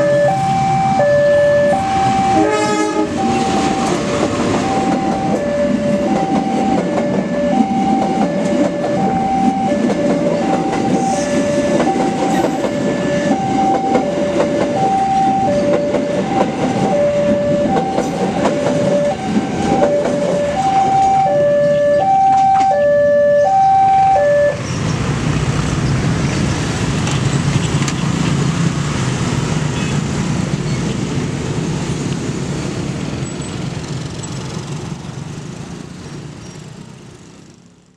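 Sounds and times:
train cars rumbling over rails: 0.0s - 37.9s.

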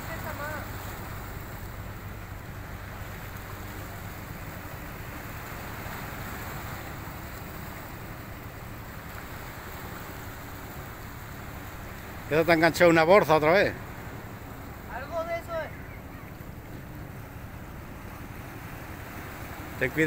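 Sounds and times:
waves washing against rocks: 0.0s - 15.7s.

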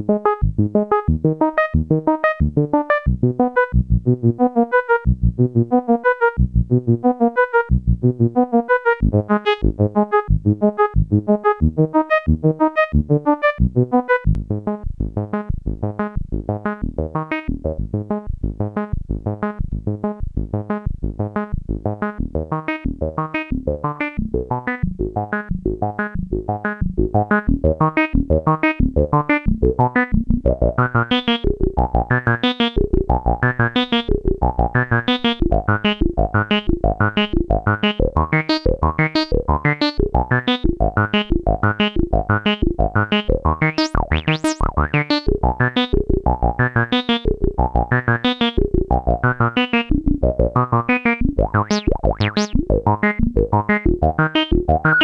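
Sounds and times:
electronic synthesizer music: 34.6s - 55.0s.

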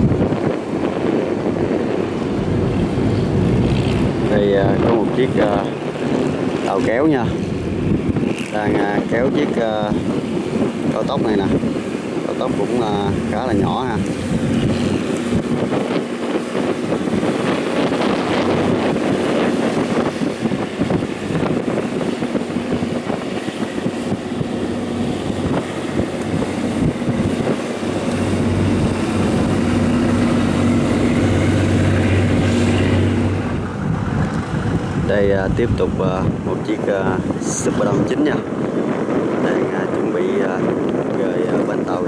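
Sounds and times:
boat engine running: 0.0s - 42.0s
churning water wash: 0.0s - 42.0s
wind buffeting microphone: 0.0s - 42.0s
deep hum: 1.4s - 5.1s, 24.3s - 35.0s.

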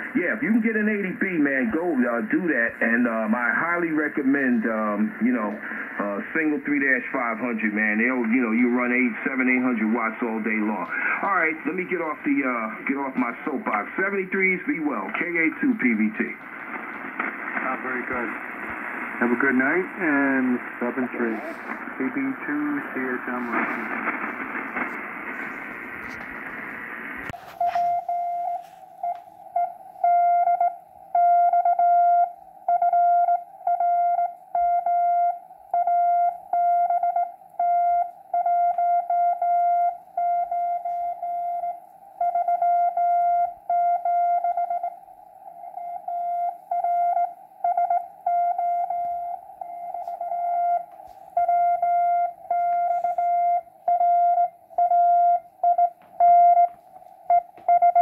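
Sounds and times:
faint radio band hiss: 0.0s - 58.0s
morse code tone: 27.3s - 45.0s, 45.6s - 58.0s.

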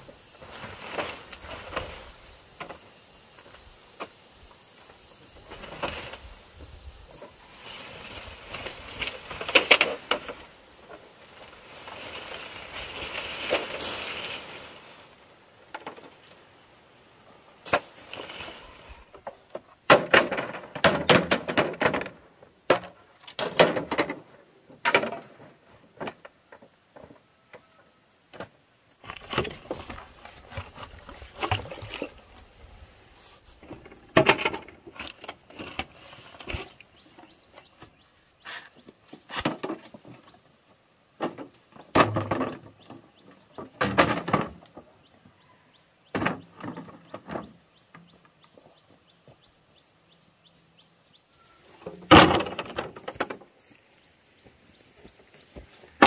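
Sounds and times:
rustling: 0.0s - 4.2s, 4.8s - 16.6s, 17.6s - 19.4s, 29.0s - 40.4s
bamboo poles knocking: 19.2s - 24.2s.

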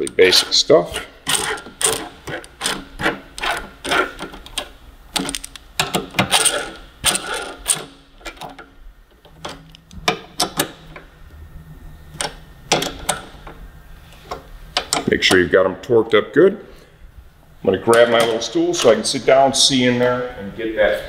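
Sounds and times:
hand ratchet clicking: 0.0s - 8.6s.

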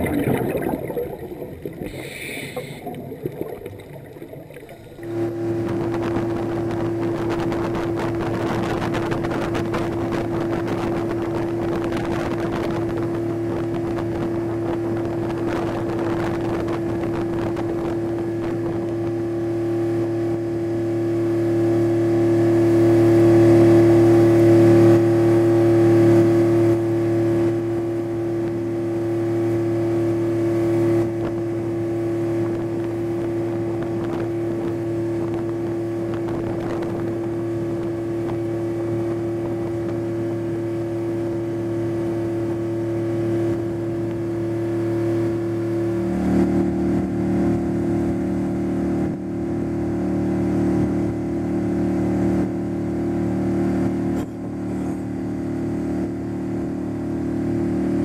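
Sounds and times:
water rushing: 0.0s - 9.3s
wind noise: 0.0s - 19.0s, 32.4s - 40.1s
boat engine humming: 0.0s - 58.0s.

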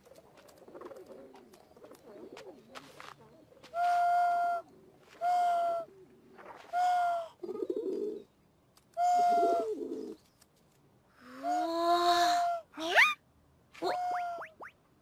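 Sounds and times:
pigeons cooing: 0.4s - 8.3s, 9.0s - 10.2s.

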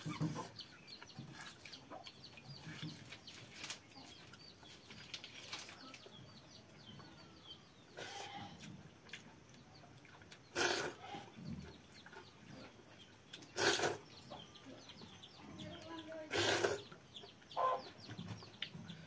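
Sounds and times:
chickens clucking: 0.0s - 19.0s
small birds chirping: 0.0s - 19.0s.

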